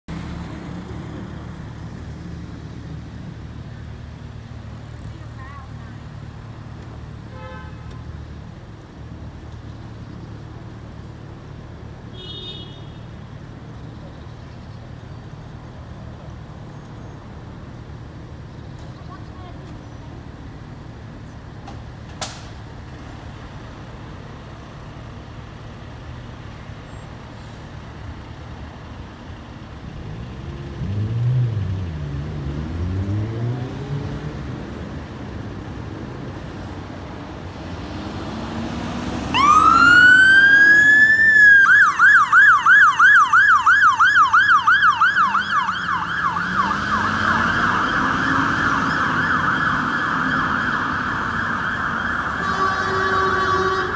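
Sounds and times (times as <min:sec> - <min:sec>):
fire engine siren wailing and yelping: 0:39.3 - 0:53.9.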